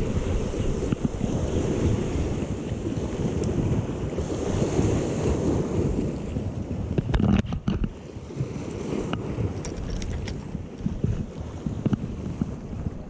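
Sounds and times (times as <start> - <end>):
waves washing against rocks: 0.0 - 13.0
wind buffeting microphone: 0.0 - 13.0.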